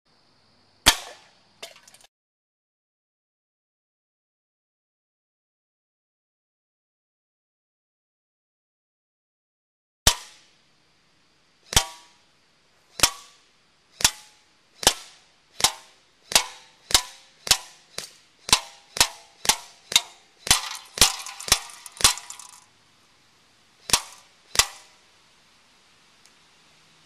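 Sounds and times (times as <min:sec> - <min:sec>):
gunshots hitting metal can: 0:00.8 - 0:02.0, 0:14.0 - 0:22.7, 0:23.8 - 0:25.0.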